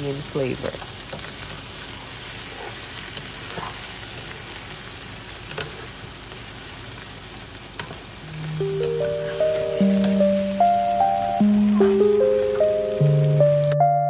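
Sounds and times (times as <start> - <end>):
chicken and onions sizzling in pan: 0.0 - 13.8
background music: 8.2 - 14.0.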